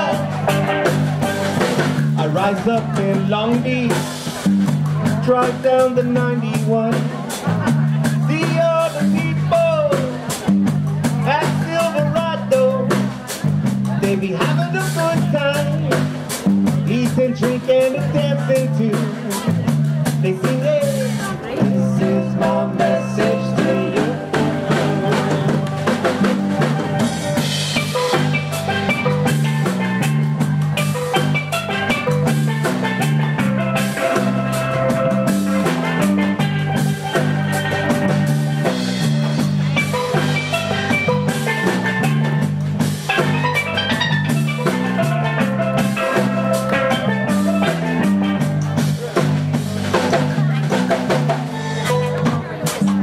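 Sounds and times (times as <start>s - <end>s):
drum kit: 0.0s - 53.0s
electric bass line: 0.0s - 53.0s
steel pan melody: 20.6s - 48.7s.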